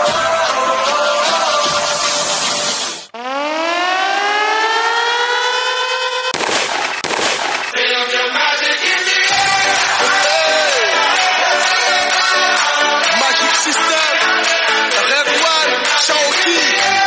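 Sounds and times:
rising siren-like tone: 0:03.1 - 0:06.4
loud noise blasts: 0:05.6 - 0:07.8
dance music: 0:07.6 - 0:17.0.

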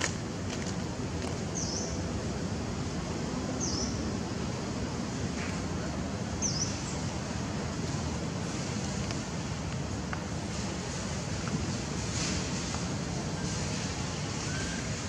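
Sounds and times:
outdoor background noise: 0:00.0 - 0:15.0
small bird chirping: 0:01.6 - 0:02.0, 0:06.4 - 0:06.9.

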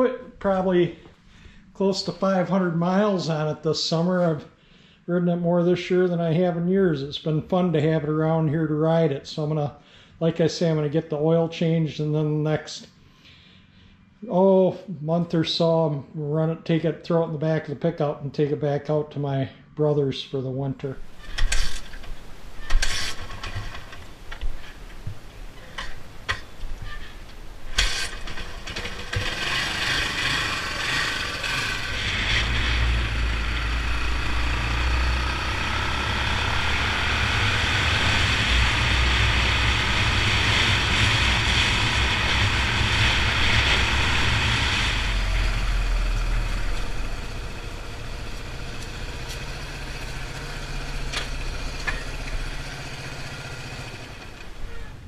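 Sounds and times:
motorcycle engine running: 0:27.7 - 0:55.0.

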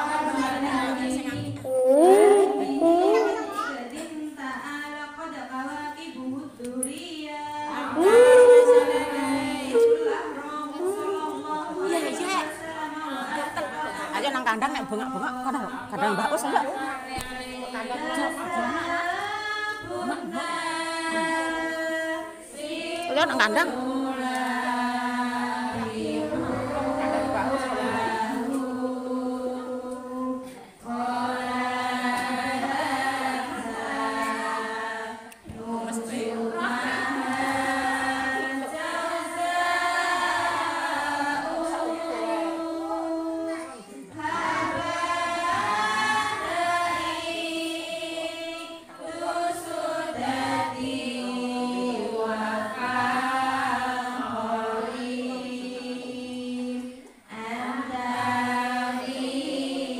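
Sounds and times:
women chanting in unison: 0:00.0 - 0:59.9.

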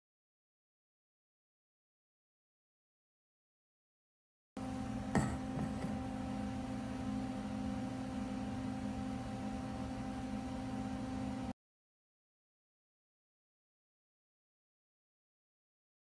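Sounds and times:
steady low hum: 0:04.6 - 0:11.5.

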